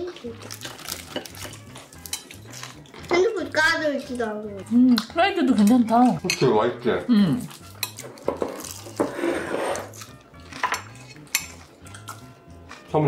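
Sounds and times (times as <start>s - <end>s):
faint background music: 0.0s - 13.0s
chewing: 0.1s - 3.2s, 7.4s - 9.1s, 9.8s - 12.9s
metal chopsticks clicking on plates: 7.6s - 8.5s, 10.6s - 12.3s.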